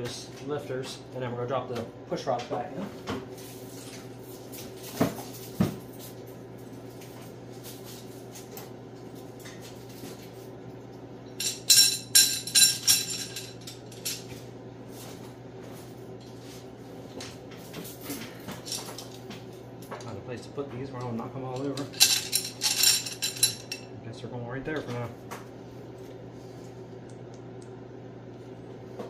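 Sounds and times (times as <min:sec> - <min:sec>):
steady low hum: 0:00.0 - 0:29.0
metal rods clinking: 0:11.4 - 0:14.3, 0:21.5 - 0:23.9.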